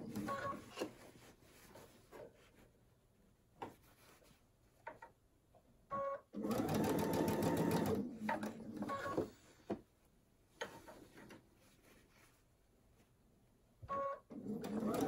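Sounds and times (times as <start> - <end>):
sewing machine stitching: 6.4 - 9.2, 14.0 - 15.0.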